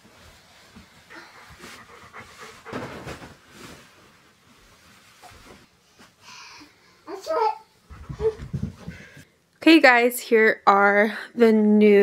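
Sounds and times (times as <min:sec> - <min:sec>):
bed sheet rustling: 0:00.0 - 0:06.0.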